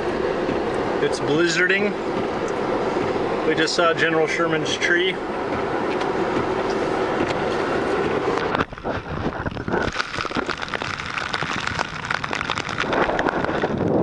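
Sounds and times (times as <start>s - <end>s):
road and wind rumble: 0.0s - 14.0s
dense crackle of clicks: 8.3s - 14.0s.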